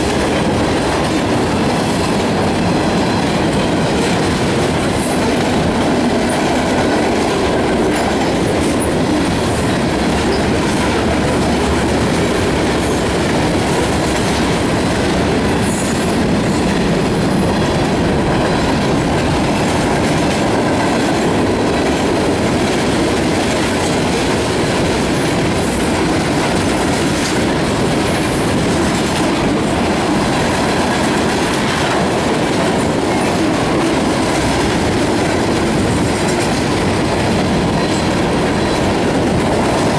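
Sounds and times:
freight train rumbling past: 0.0s - 39.9s.

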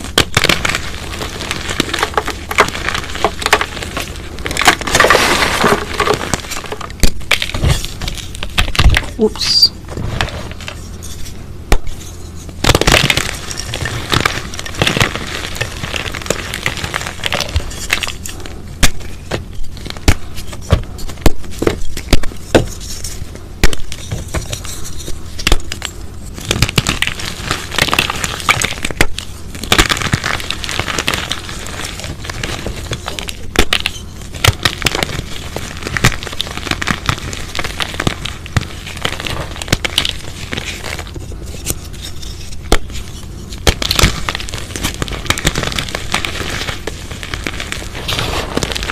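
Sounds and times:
chalk crunching by hand: 23.9s - 48.9s.

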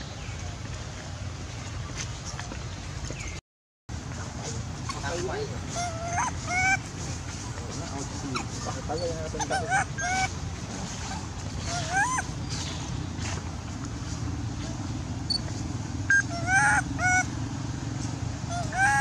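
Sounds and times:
young macaque crying: 4.7s - 10.4s, 11.0s - 12.5s, 16.1s - 17.3s, 18.4s - 19.0s.

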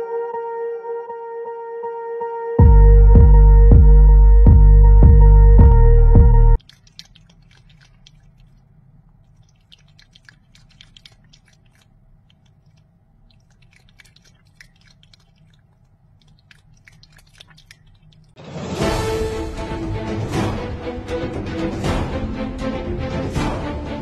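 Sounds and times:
cat lapping water: 6.6s - 18.6s.

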